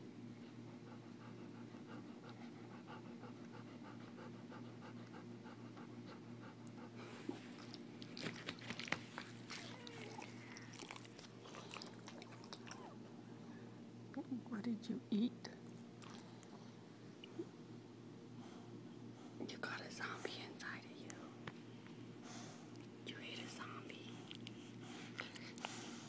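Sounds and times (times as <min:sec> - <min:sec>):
faint steady hum: 0:00.0 - 0:26.0
dog panting: 0:00.4 - 0:13.0, 0:24.2 - 0:26.0.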